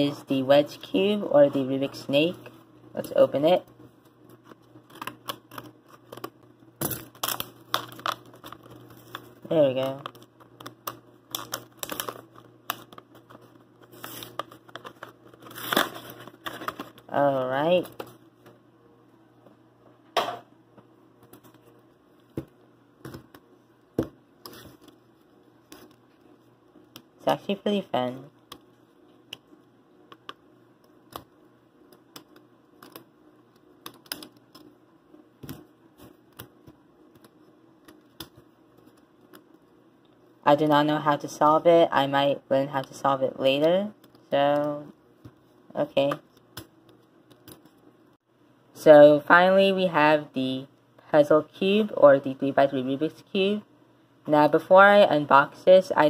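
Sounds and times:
packaging crinkling and tearing: 0:04.4 - 0:17.1.

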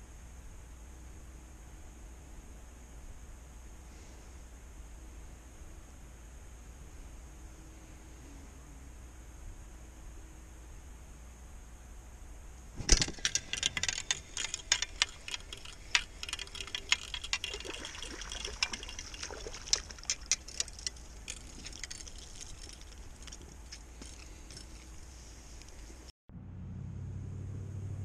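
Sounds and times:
fish splashing at the surface: 0:15.6 - 0:23.2.

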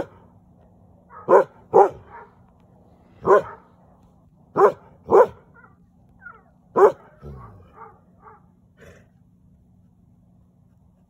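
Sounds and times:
dog barking: 0:01.1 - 0:02.4, 0:03.2 - 0:03.7, 0:04.5 - 0:08.6.

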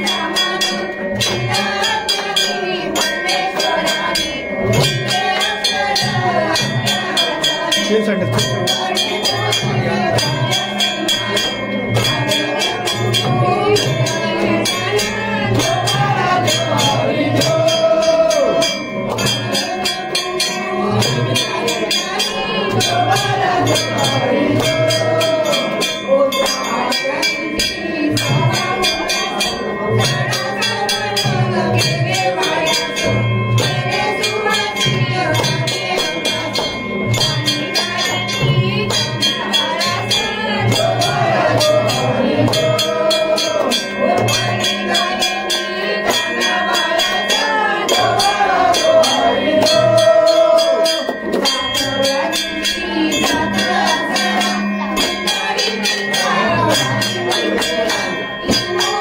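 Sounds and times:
rapid percussion strikes: 0:00.0 - 0:59.0
voices singing: 0:00.0 - 0:59.0
steady drum beat: 0:04.6 - 0:26.8.

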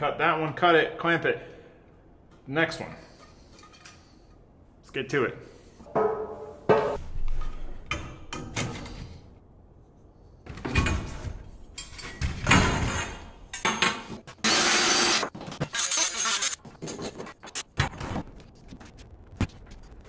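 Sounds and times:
power tool burst: 0:14.4 - 0:15.2.

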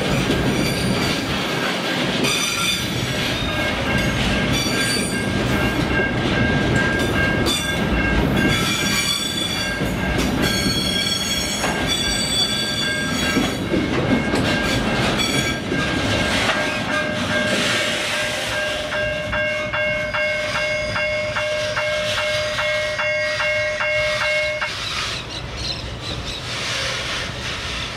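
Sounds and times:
freight wagons rolling on rails: 0:00.0 - 0:27.9
wheel squeal: 0:10.4 - 0:13.6.

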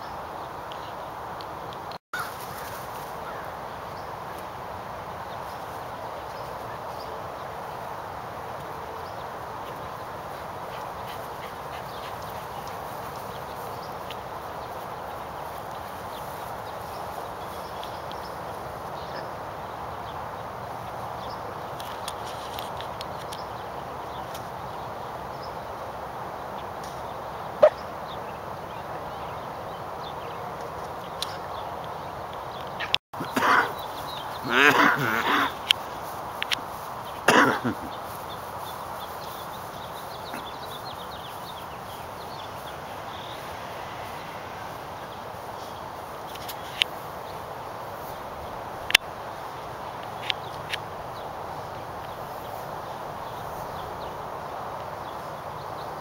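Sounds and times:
background hiss: 0:00.0 - 0:56.0
outdoor background noise: 0:00.0 - 0:56.0
dog barking: 0:27.6 - 0:27.8.

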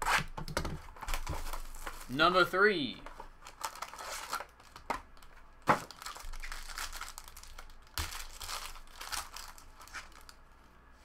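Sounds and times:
foil wrapper crinkling: 0:00.9 - 0:02.3, 0:03.4 - 0:10.4.

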